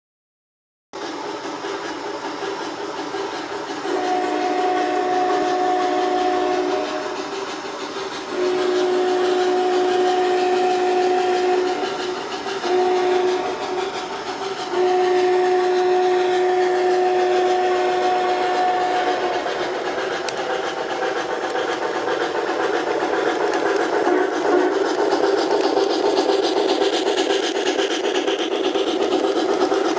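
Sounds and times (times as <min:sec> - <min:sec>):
steam hiss and running noise: 0:01.0 - 0:29.9
model steam locomotive whistle: 0:03.8 - 0:26.4.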